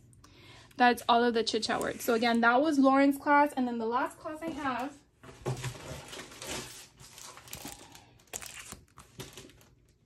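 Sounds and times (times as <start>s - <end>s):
plastic sleeve crinkling: 5.6s - 10.0s.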